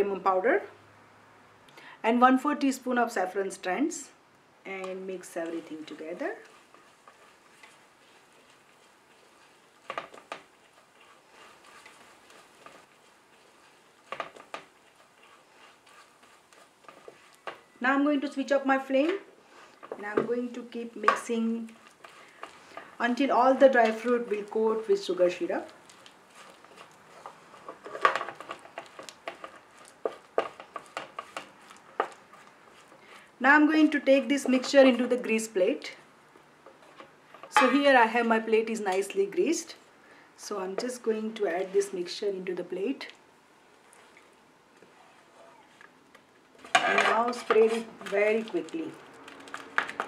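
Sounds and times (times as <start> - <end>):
spatula scraping stir: 4.8 - 35.9, 36.6 - 39.9, 46.6 - 50.0
spatula clacking against pan: 26.0 - 32.5.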